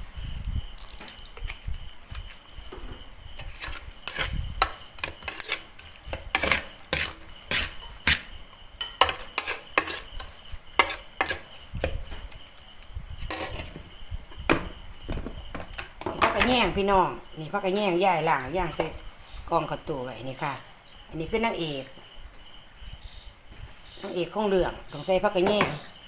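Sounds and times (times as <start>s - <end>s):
spatula scraping a metal pot: 3.4s - 11.6s, 13.3s - 13.7s.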